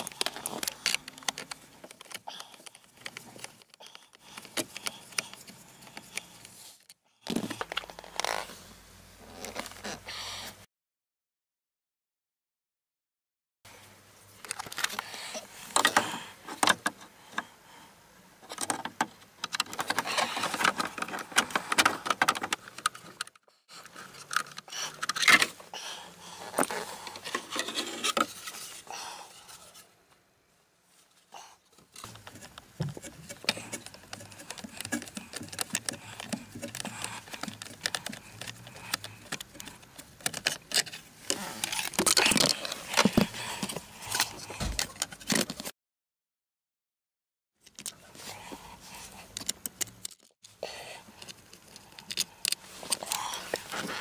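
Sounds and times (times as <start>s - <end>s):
hands working on plastic trim: 0.0s - 8.5s, 18.4s - 25.7s, 31.8s - 45.7s, 47.6s - 50.3s, 51.0s - 54.0s.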